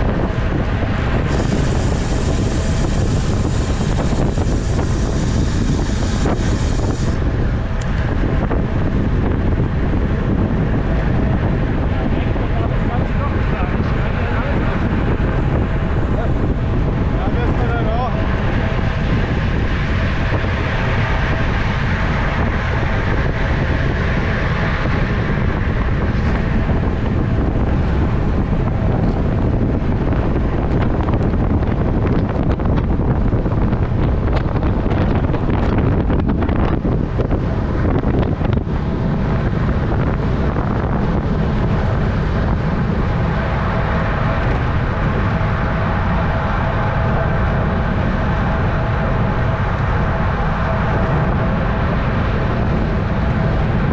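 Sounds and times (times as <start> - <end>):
faint steady whine: 0.0 - 31.8
wind buffeting microphone: 0.0 - 53.9.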